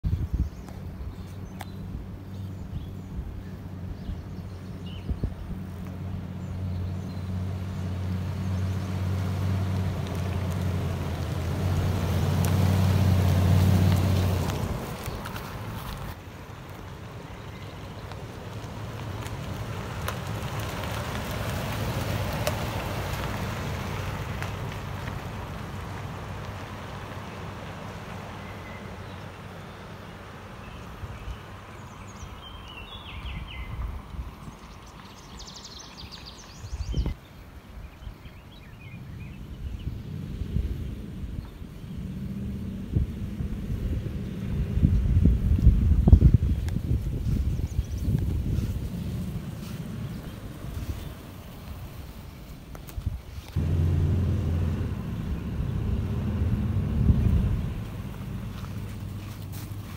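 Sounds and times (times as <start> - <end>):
wind rumbling on microphone: 0.0 - 16.3, 30.9 - 59.9
truck engine passing by: 2.1 - 16.2, 17.8 - 30.6, 39.8 - 45.6, 48.1 - 52.1, 53.6 - 59.9
bird chirping: 30.6 - 33.8.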